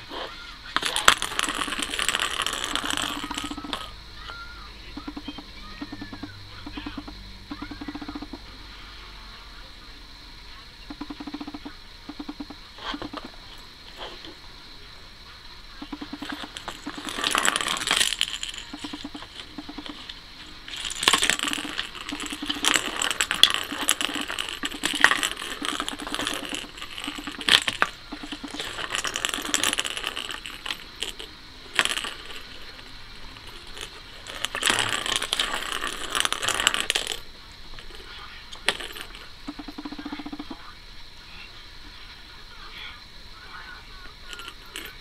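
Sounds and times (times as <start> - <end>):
plastic ball rolling in track: 0.0 - 8.5, 10.8 - 14.4, 15.8 - 40.7.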